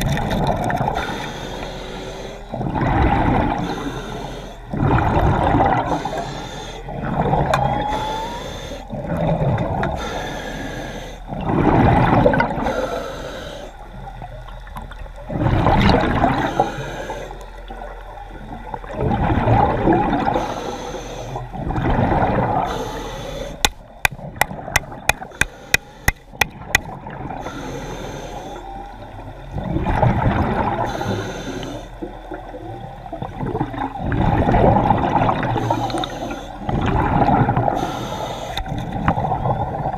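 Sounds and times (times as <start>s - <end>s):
breathing through snorkel: 9.9s - 11.2s, 12.6s - 13.8s, 22.6s - 23.8s, 25.1s - 26.4s, 37.7s - 38.7s.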